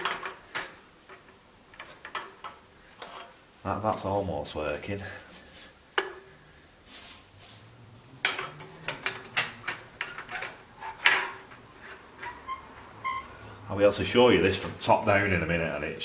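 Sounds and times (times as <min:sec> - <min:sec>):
metal pipe clicking and clattering: 0:00.0 - 0:03.4, 0:08.2 - 0:13.2.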